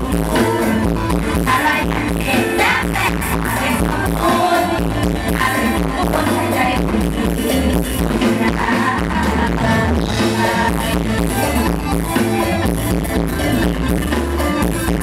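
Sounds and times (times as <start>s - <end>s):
live band music over loudspeakers: 0.0s - 15.0s
pulsing bass beat: 0.0s - 15.0s.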